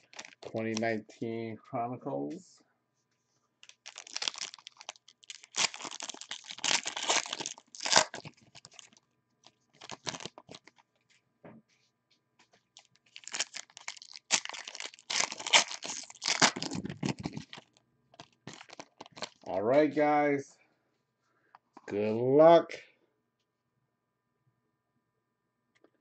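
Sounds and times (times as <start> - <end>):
plastic wrapping tearing and crinkling: 0.0 - 0.9, 3.6 - 10.8, 12.7 - 19.5.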